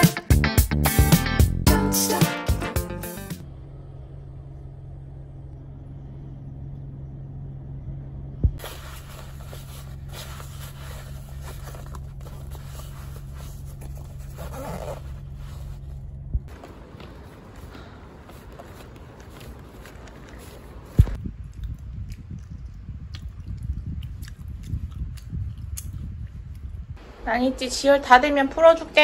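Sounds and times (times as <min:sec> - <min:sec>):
car idling hum: 0:03.4 - 0:21.2
fabric bag rustling: 0:08.6 - 0:21.2.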